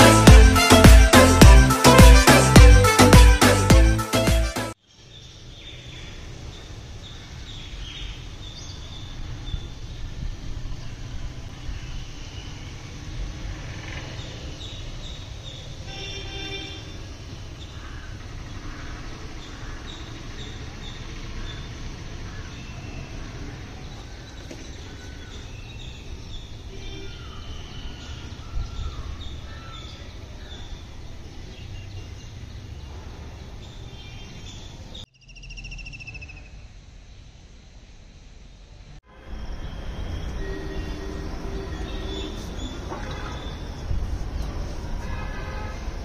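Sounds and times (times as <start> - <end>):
high trilling bird call: 35.1 - 36.6
birds chirping and calling: 40.2 - 44.6.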